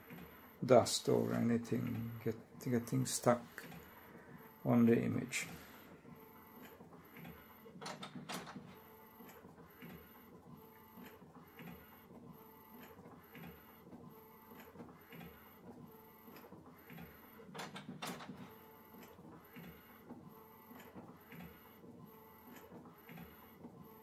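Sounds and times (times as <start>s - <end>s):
sharp printer clicks: 1.3s - 4.1s, 6.4s - 12.0s, 12.7s - 15.6s, 16.2s - 21.8s, 22.4s - 23.8s.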